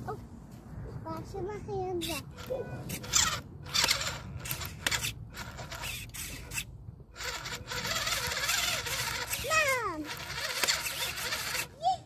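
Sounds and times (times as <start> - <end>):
electric motor whirring: 2.1 - 11.8
tyres churning in mud: 7.2 - 11.8.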